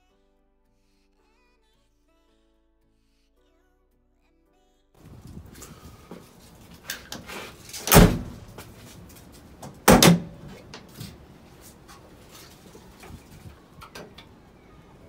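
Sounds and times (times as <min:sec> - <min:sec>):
tailgate slamming and latching: 0:06.8 - 0:08.8, 0:09.6 - 0:11.2
tailgate latch releasing clunk: 0:06.9 - 0:08.5, 0:09.6 - 0:10.7.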